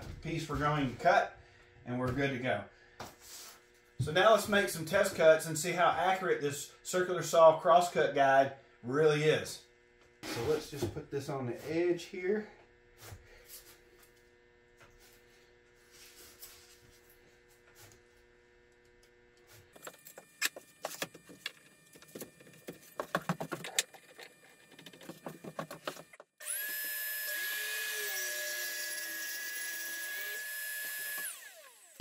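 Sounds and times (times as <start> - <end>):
circular saw cutting plywood: 22.6 - 32.0.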